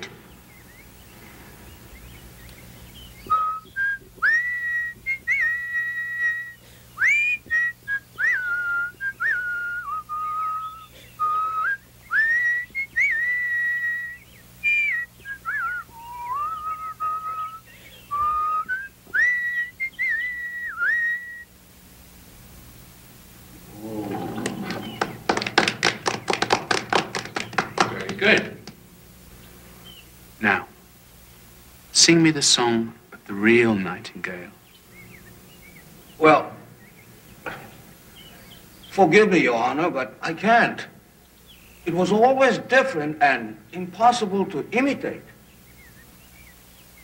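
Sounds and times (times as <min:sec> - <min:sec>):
person whistling birdlike tune: 0:03.2 - 0:21.5.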